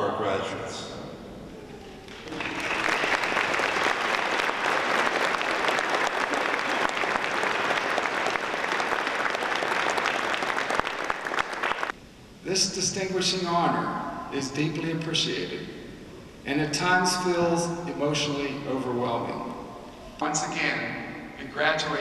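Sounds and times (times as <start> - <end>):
large audience applauding: 2.0 - 12.0.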